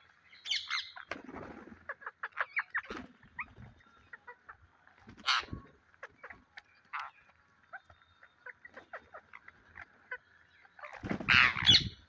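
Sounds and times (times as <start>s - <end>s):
parakeets chirping and squawking: 0.0s - 12.0s
wings flapping: 1.0s - 2.0s, 2.7s - 3.7s, 10.8s - 11.8s.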